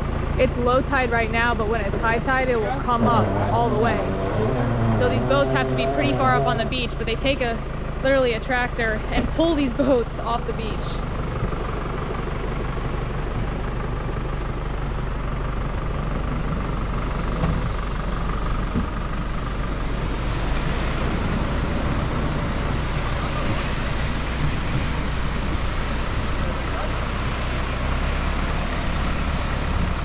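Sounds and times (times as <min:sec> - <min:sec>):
tractor engine droning: 0:00.0 - 0:30.0.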